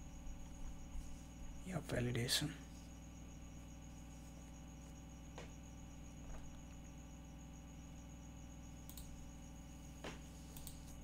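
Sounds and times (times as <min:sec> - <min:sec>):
electrical hum and hiss: 0:00.0 - 0:11.0
faint short clicks: 0:08.9 - 0:09.1.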